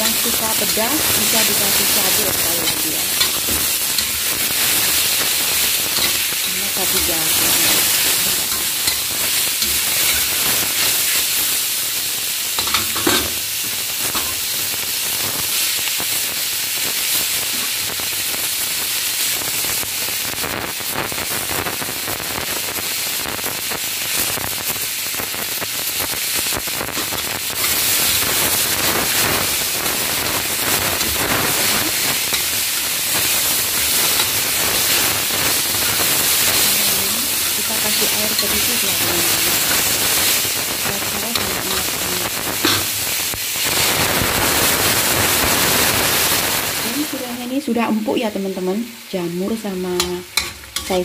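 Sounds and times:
vegetables sizzling in a wok: 0:00.0 - 0:51.0
metal spatula scraping a pan: 0:00.6 - 0:11.2, 0:50.0 - 0:51.0.

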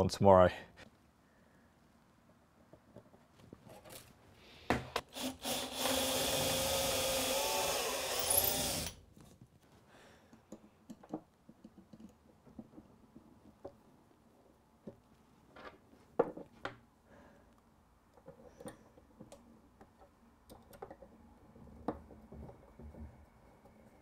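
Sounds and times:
cordless drill boring into wood: 0:05.1 - 0:09.0.

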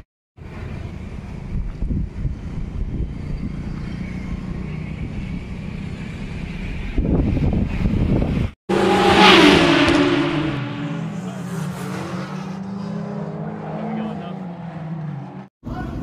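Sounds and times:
wind on microphone: 0:01.4 - 0:03.6, 0:06.8 - 0:08.6.

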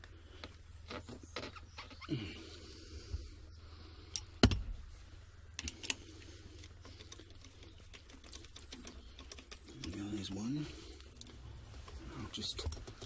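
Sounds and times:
small metal parts clicking: 0:06.6 - 0:10.4.

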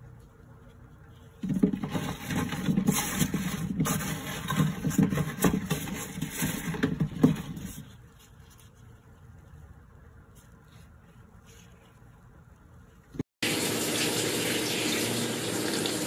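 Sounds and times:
plums rattling in a metal tray: 0:01.4 - 0:08.0.

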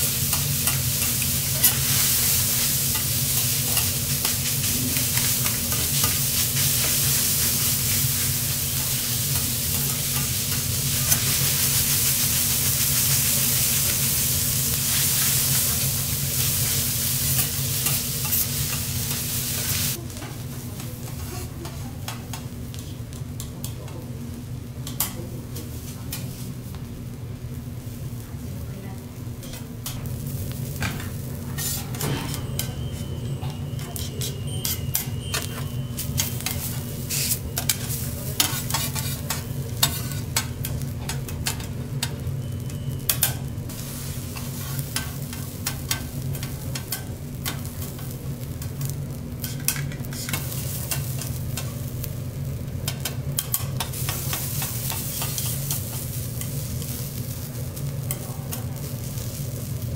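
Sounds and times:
rice sizzling on a griddle: 0:00.0 - 0:59.9
metal spatula scraping griddle: 0:00.3 - 0:19.9, 0:31.5 - 0:41.7, 0:44.1 - 0:47.6.

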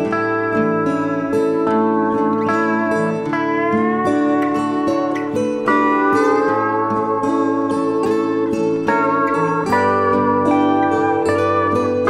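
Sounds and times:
plucked string melody: 0:00.0 - 0:12.0.

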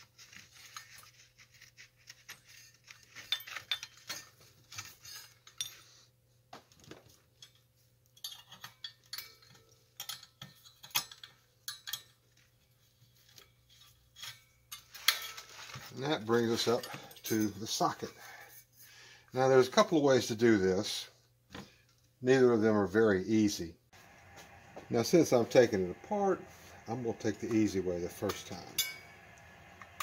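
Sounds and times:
metal tubes clinking: 0:07.4 - 0:12.2, 0:13.7 - 0:18.4, 0:26.4 - 0:30.0.

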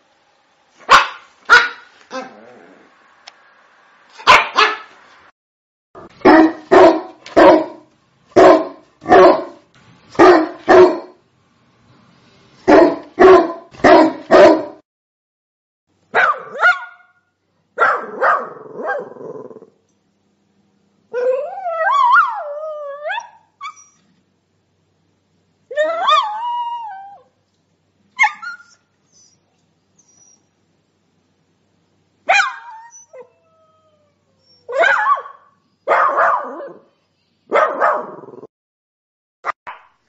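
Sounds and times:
dog barking: 0:00.8 - 0:02.3, 0:04.2 - 0:05.0, 0:06.0 - 0:11.2, 0:12.7 - 0:14.8, 0:16.1 - 0:17.2, 0:17.8 - 0:19.2, 0:32.3 - 0:32.8, 0:34.7 - 0:36.9, 0:37.5 - 0:38.3
dog howling: 0:21.2 - 0:23.3, 0:25.7 - 0:27.3.

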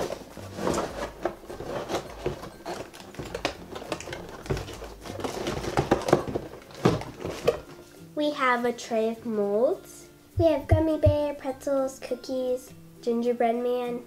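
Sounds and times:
cardboard and plastic rustling: 0:00.0 - 0:07.9.

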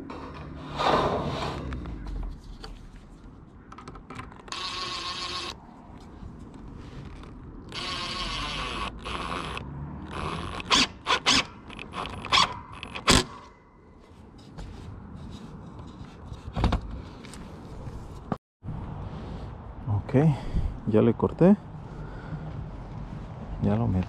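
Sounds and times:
impact driver hammering screws: 0:07.7 - 0:13.3.

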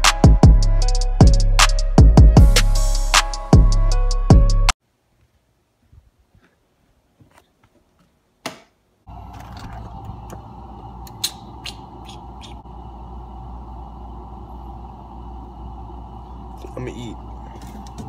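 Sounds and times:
refrigerator hum: 0:09.1 - 0:18.0.

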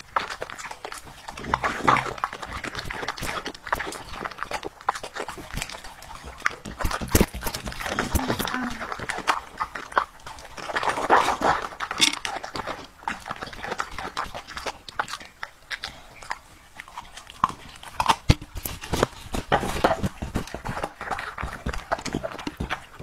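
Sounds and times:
dog crunching vegetables: 0:00.0 - 0:23.0.

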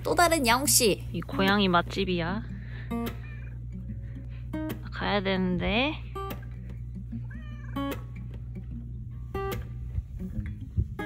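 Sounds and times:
soft acoustic guitar music: 0:00.0 - 0:11.0
cat meowing: 0:03.1 - 0:03.6, 0:07.2 - 0:08.1.

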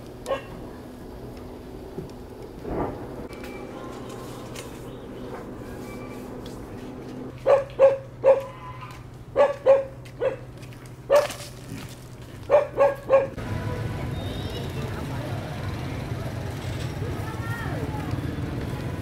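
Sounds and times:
low hum: 0:00.0 - 0:07.4
dog barking: 0:00.3 - 0:00.6, 0:07.4 - 0:08.6, 0:09.3 - 0:10.5, 0:11.1 - 0:11.4, 0:12.5 - 0:13.4.

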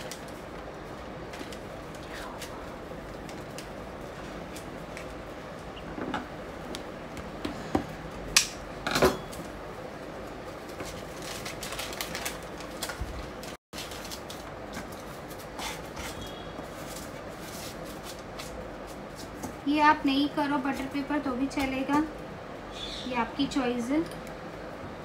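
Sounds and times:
paper crinkling: 0:10.5 - 0:19.4.

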